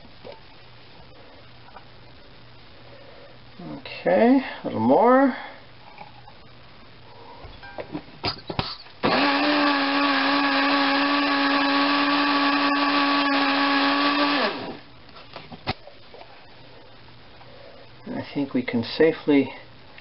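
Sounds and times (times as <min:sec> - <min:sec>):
blender motor running: 0:09.0 - 0:14.9.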